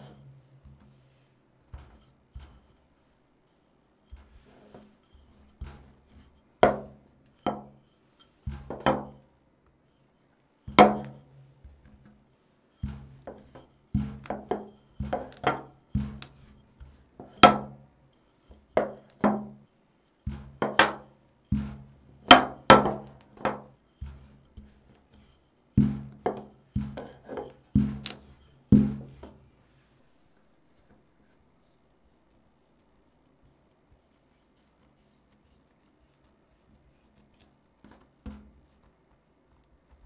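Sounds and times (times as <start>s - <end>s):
rolling pin rolling dough: 0.0s - 40.0s
rolling pin knocking on table: 6.6s - 7.7s, 8.5s - 9.2s, 10.7s - 11.8s, 12.8s - 17.8s, 18.8s - 19.6s, 20.3s - 24.7s, 25.8s - 29.4s, 37.9s - 38.6s.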